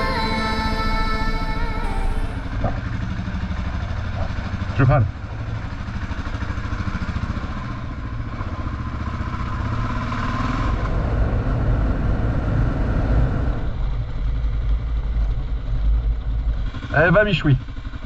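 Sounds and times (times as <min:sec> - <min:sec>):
motorcycle engine running: 0:02.6 - 0:10.2, 0:13.7 - 0:18.0.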